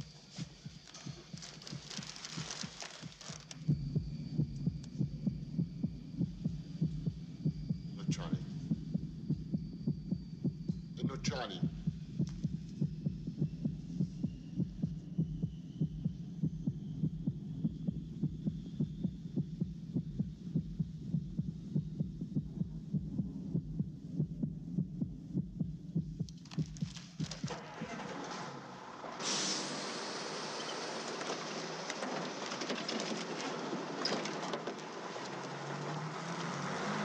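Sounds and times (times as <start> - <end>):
low steady hum: 0.0 - 27.5
heartbeat thumps: 0.0 - 27.6.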